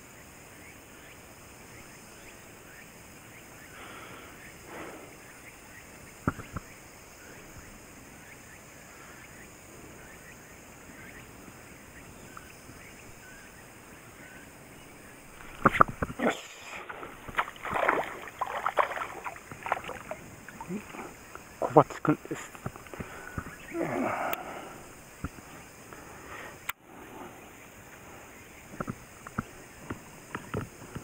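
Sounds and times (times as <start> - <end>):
fish thrashing and splashing: 16.8 - 21.0.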